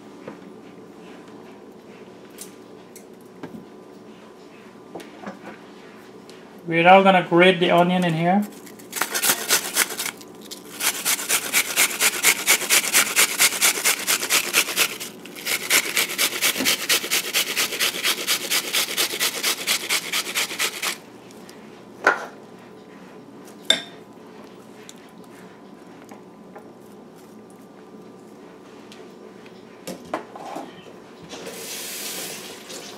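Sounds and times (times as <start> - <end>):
onion grated on metal grater: 8.7 - 21.0.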